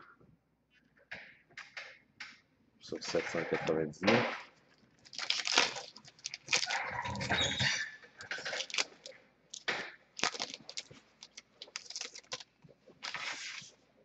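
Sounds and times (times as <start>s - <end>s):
foil wrapper tearing and crinkling: 5.0s - 13.7s
cards rustling and clicking: 5.0s - 13.8s.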